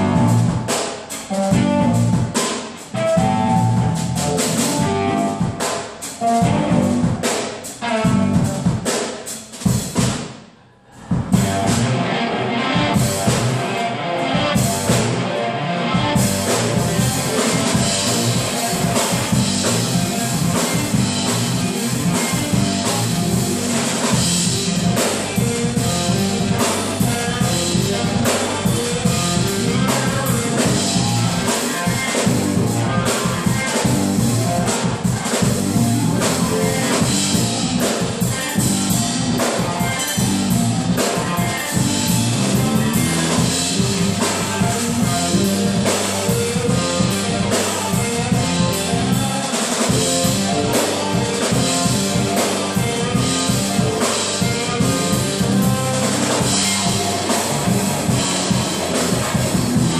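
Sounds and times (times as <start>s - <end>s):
bass guitar: 0.0s - 9.0s, 11.0s - 59.9s
electric guitar: 0.0s - 10.1s, 11.0s - 59.9s
drum kit beat: 0.0s - 59.9s.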